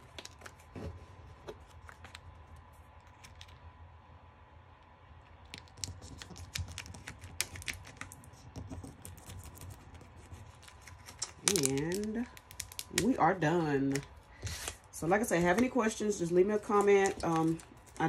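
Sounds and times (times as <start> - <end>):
tape peeling crackle: 5.9 - 13.2.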